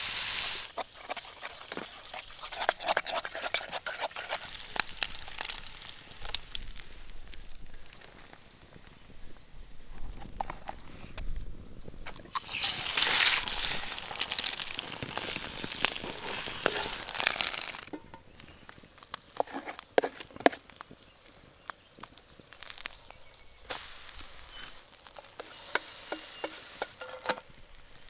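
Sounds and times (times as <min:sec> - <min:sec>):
eggs sizzling in oil: 0:00.0 - 0:09.7, 0:12.2 - 0:28.0
metal spoon scraping pan: 0:00.7 - 0:05.1, 0:15.1 - 0:18.2, 0:25.2 - 0:27.4.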